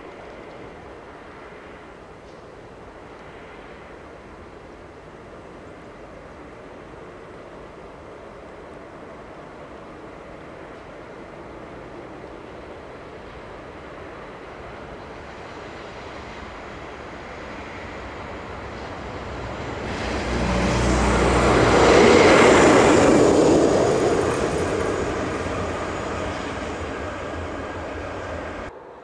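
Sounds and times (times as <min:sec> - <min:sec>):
train wheels rumbling on rail: 0:07.8 - 0:28.9.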